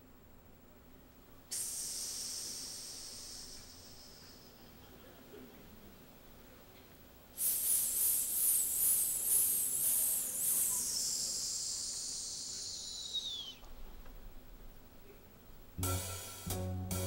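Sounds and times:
loud high hiss: 0:01.5 - 0:04.9, 0:07.3 - 0:13.6, 0:15.8 - 0:17.0.

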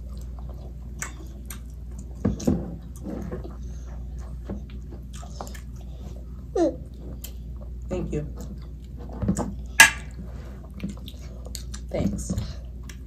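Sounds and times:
wet chewing and lip smacks: 0:00.0 - 0:03.0, 0:04.1 - 0:06.1, 0:10.6 - 0:11.9.

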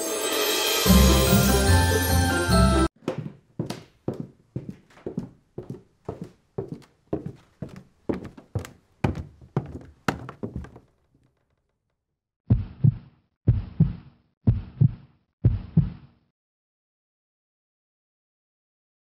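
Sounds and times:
footsteps going down stairs: 0:03.0 - 0:11.5
heartbeat thumps: 0:12.5 - 0:16.0.

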